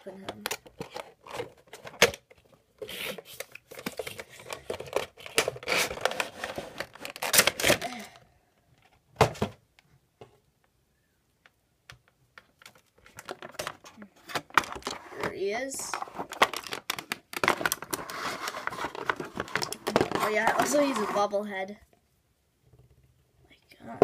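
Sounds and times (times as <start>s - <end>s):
cardboard and plastic rustling: 0.1s - 8.2s, 12.4s - 21.5s.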